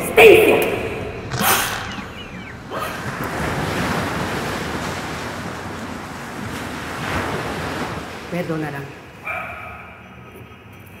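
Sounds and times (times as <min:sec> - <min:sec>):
sea waves washing: 0:00.6 - 0:10.0.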